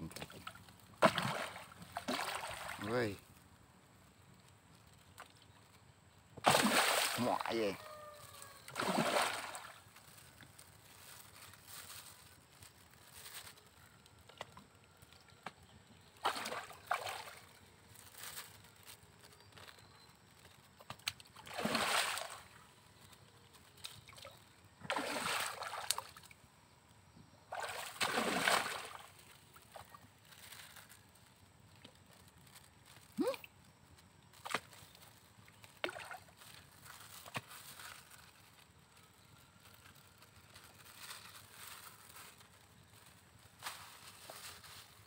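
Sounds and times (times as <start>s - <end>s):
fish splashing at water surface: 1.0s - 2.8s, 6.4s - 9.8s, 16.2s - 17.4s, 21.4s - 22.5s, 24.9s - 26.3s, 27.5s - 29.9s.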